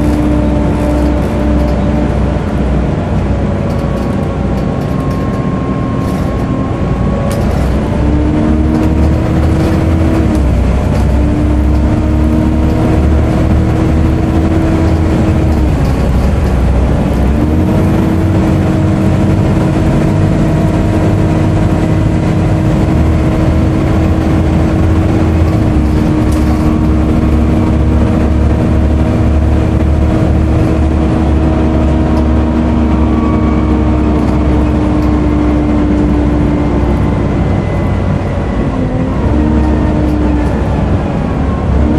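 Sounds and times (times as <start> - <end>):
bus diesel engine drone: 0.0 - 41.9
engine cooling fan whine: 0.0 - 41.9.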